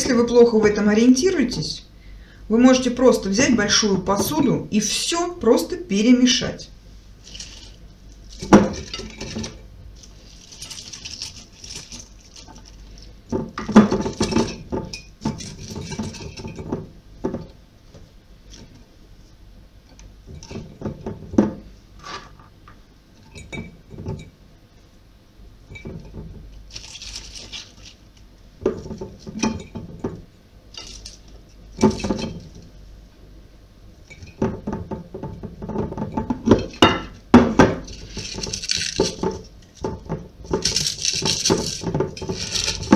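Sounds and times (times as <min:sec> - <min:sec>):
cabbage rustling: 0:07.1 - 0:14.6, 0:26.7 - 0:28.3, 0:37.8 - 0:39.8, 0:40.4 - 0:42.9.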